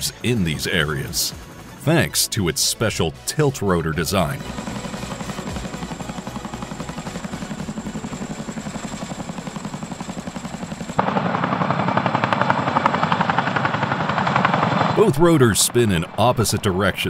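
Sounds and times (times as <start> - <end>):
helicopter rotor blades beating: 0.0 - 17.0.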